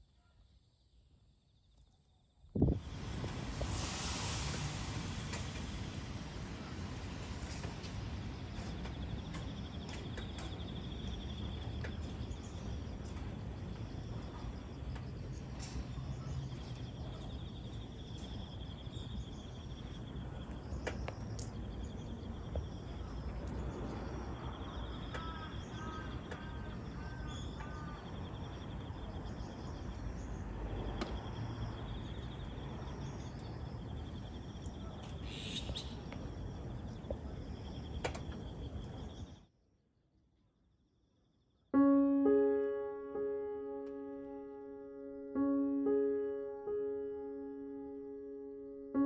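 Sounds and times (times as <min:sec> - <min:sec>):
bird chirps: 0:34.8 - 0:36.2.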